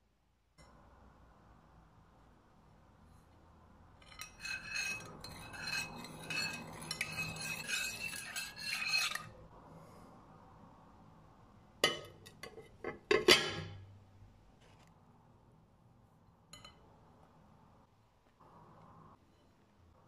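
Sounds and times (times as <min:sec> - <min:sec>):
spoon stirring in glass bowl: 0:04.0 - 0:09.3.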